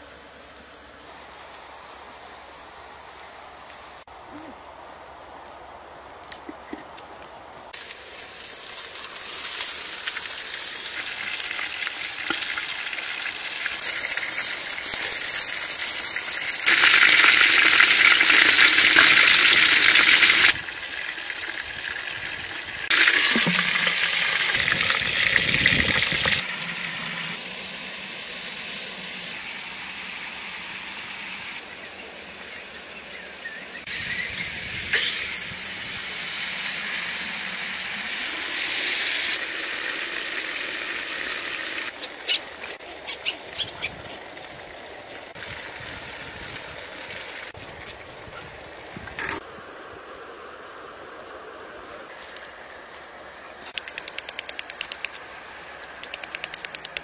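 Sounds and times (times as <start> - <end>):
water boiling in a pot: 7.8 - 27.4, 36.2 - 41.9.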